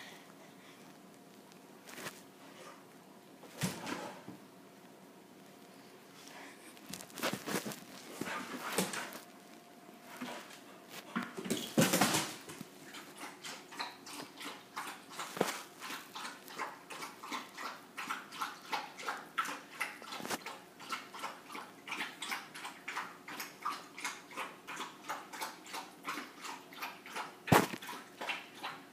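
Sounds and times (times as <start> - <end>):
puppy scrambling on wooden floor: 6.9 - 9.2
dog lapping from steel bowl: 12.9 - 28.9.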